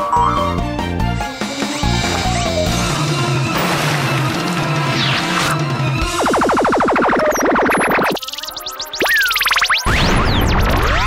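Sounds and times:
rising synthesizer chirps: 0.0s - 0.8s.

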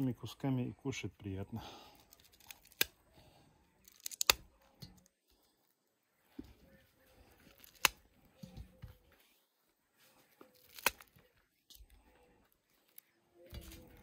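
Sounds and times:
corn cobs snapping: 2.0s - 3.0s, 3.8s - 5.1s, 7.5s - 8.1s, 10.4s - 11.8s.

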